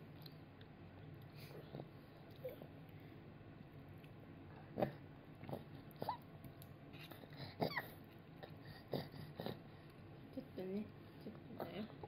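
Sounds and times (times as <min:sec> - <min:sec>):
toddler eating mouth sounds: 0:04.6 - 0:09.6.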